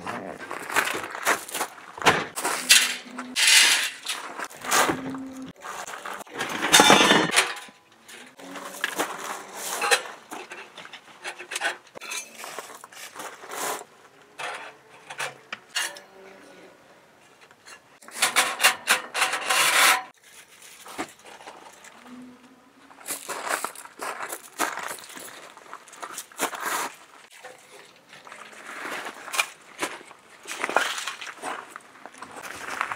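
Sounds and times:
metal stove parts clanking: 0:02.6 - 0:04.8, 0:06.4 - 0:08.3, 0:09.7 - 0:12.4, 0:14.4 - 0:16.0, 0:18.0 - 0:20.1.

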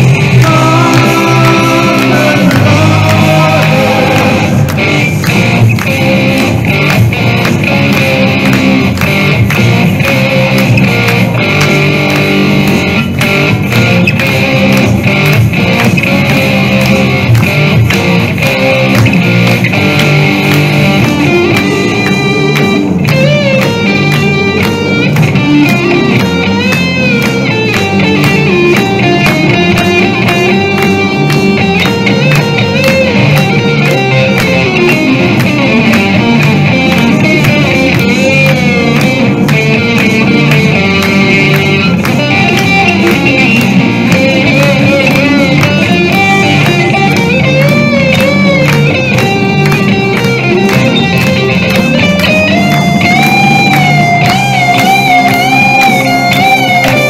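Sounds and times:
electric guitar lead melody: 0:00.0 - 0:57.0
rock backing track: 0:00.0 - 0:57.0.

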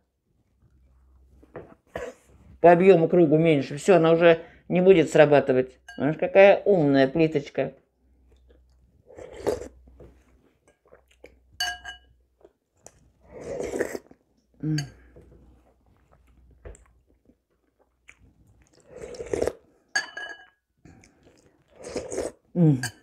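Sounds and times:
slurping and chewing: 0:08.3 - 0:11.5, 0:12.4 - 0:14.2, 0:15.0 - 0:19.8, 0:20.9 - 0:22.5
metal spoon clinking on ceramic bowl: 0:11.6 - 0:12.1, 0:20.0 - 0:20.6.

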